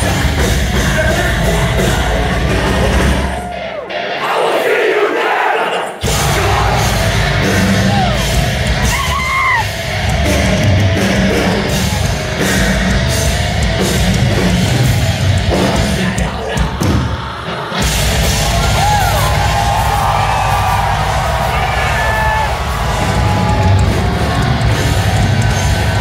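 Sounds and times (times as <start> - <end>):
metal band playing live: 0.0 - 4.7, 5.7 - 26.0
audience yelling: 0.0 - 26.0
screamed vocals: 2.8 - 9.8.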